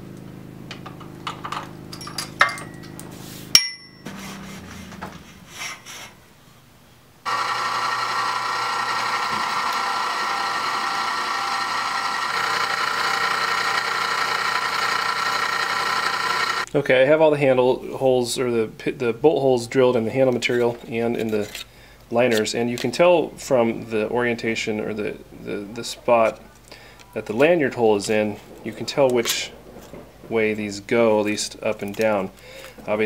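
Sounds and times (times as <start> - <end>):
handling clicks and knocks: 0.7 - 4.1
ringing metallic clink: 1.9 - 3.0, 3.6 - 4.1
drill press drilling: 7.3 - 16.7.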